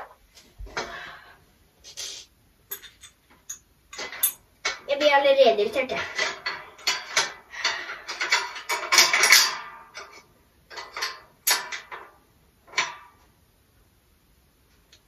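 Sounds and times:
sharp metal knocks: 0:02.7 - 0:04.4
metal rattling and clicking: 0:02.7 - 0:04.8.

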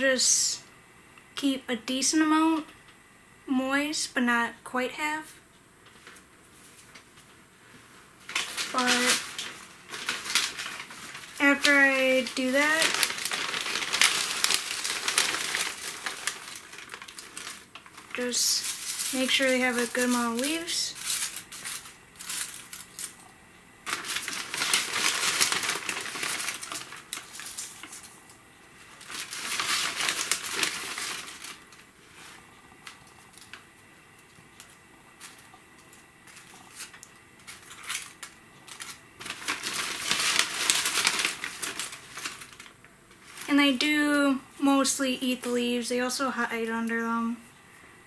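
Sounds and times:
dry leaves rustling: 0:08.3 - 0:23.2, 0:23.8 - 0:28.2, 0:28.8 - 0:32.4, 0:36.2 - 0:43.8.

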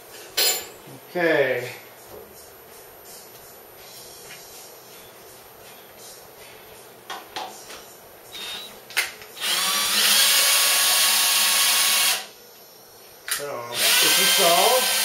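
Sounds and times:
cordless drill running: 0:08.3 - 0:08.7, 0:09.4 - 0:12.3, 0:13.7 - 0:15.0.

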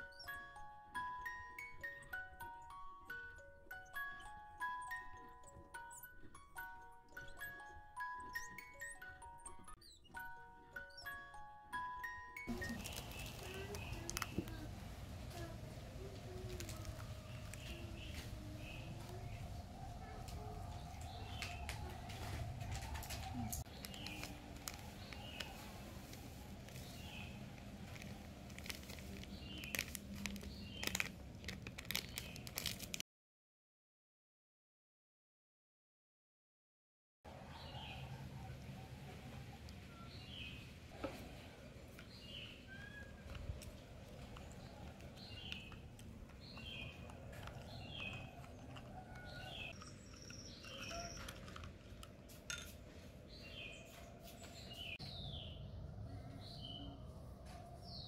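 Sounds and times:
birds chirping: 0:00.0 - 0:32.9, 0:37.3 - 0:58.0
powder pattering into a bowl: 0:12.5 - 0:18.4, 0:23.0 - 0:33.0
packet crinkling: 0:12.5 - 0:19.4, 0:21.2 - 0:33.0, 0:42.1 - 0:53.7.

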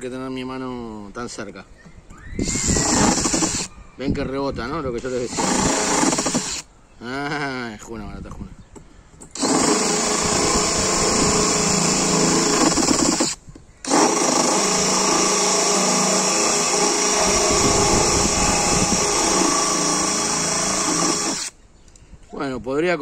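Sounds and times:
cordless drill grinding into plywood: 0:02.4 - 0:03.7, 0:05.0 - 0:06.7, 0:09.3 - 0:21.6.

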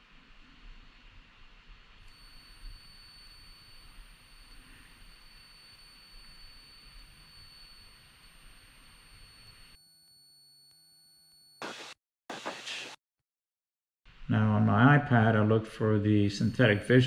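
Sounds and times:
aircraft cabin hiss: 0:11.6 - 0:13.0.

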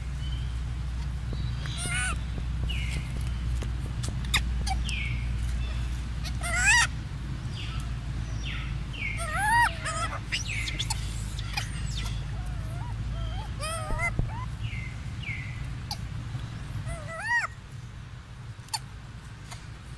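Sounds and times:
infant monkey squealing: 0:01.6 - 0:02.3, 0:04.0 - 0:05.0, 0:05.6 - 0:07.0, 0:09.0 - 0:14.6, 0:15.8 - 0:16.1, 0:16.8 - 0:17.6.

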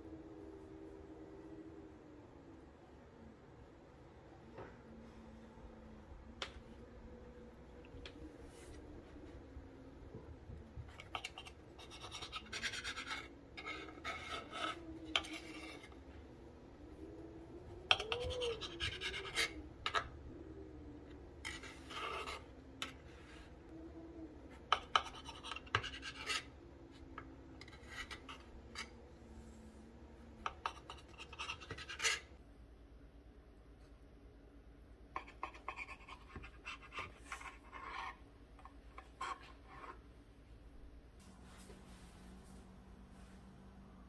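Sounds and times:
knife scraping and tapping board: 0:24.7 - 0:26.5.

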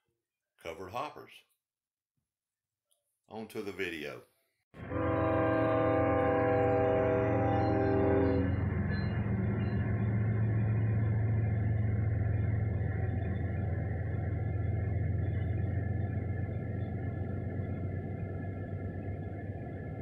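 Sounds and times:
diesel locomotive engine rumble: 0:04.8 - 0:20.0
freight cars rolling by: 0:06.8 - 0:20.0.

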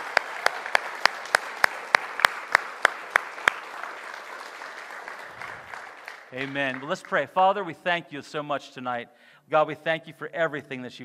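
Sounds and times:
crowd applauding: 0:00.0 - 0:07.2
loud close hand claps: 0:00.0 - 0:07.2.

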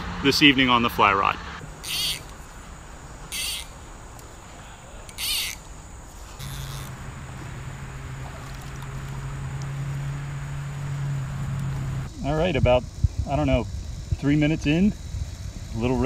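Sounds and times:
creek background: 0:00.0 - 0:12.7
steady low hum: 0:00.0 - 0:16.0
insect high buzzing bursts: 0:01.6 - 0:16.0.

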